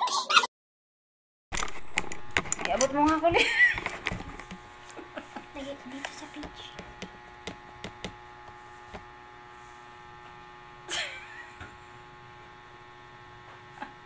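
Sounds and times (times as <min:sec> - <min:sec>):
makeup tools clicking and tapping: 0:01.6 - 0:04.6, 0:06.0 - 0:08.2
steady electrical hum: 0:01.6 - 0:14.0.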